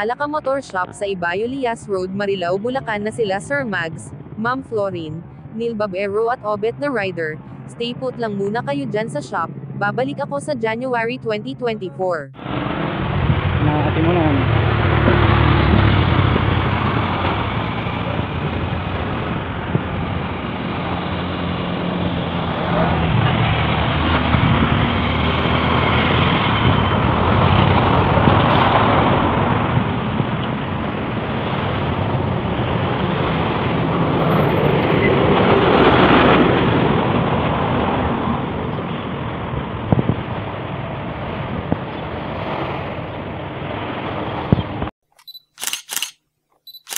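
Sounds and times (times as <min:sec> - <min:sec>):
wind buffeting microphone: 0:13.0 - 0:44.9.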